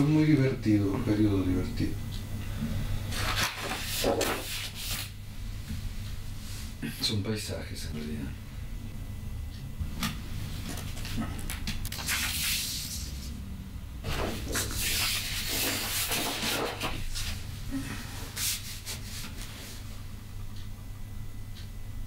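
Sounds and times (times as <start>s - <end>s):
paper sheets rustling: 3.1s - 5.1s, 11.9s - 13.2s, 14.1s - 17.4s.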